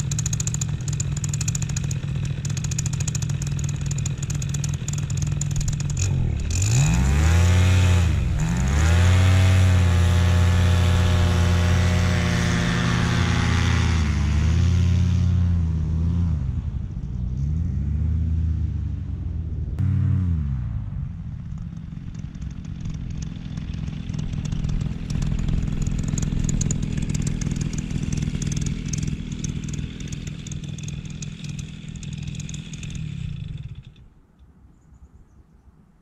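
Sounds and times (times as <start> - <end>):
paramotor engine and propeller: 0.0 - 35.0.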